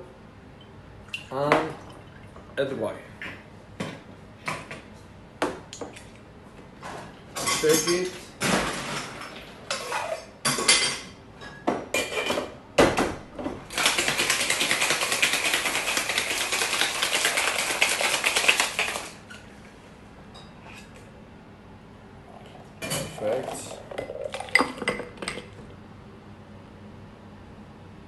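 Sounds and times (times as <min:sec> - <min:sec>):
ice rattling in metal shaker: 0:13.7 - 0:19.2.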